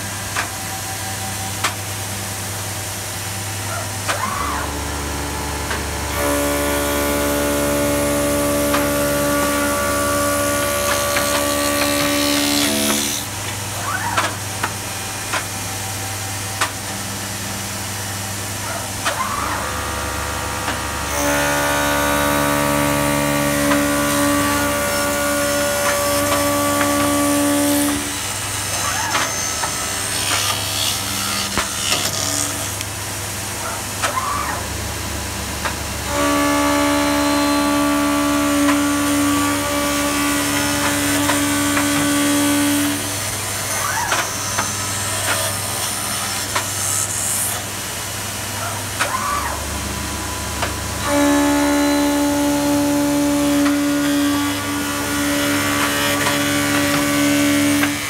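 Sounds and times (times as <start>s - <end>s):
loud steady machine whine: 0.0s - 58.0s
wood lathe cutting: 0.0s - 58.0s.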